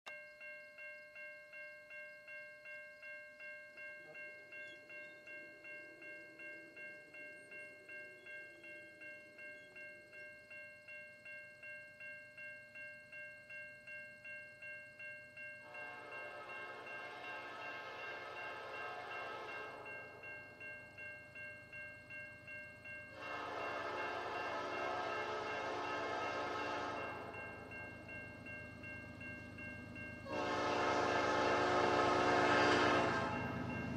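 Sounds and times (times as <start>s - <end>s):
level-crossing bell ringing: 0.1s - 31.1s, 32.8s - 33.9s
low train rumble: 1.7s - 33.9s
locomotive air horn blasts: 15.6s - 19.9s, 23.1s - 27.4s, 30.2s - 33.6s.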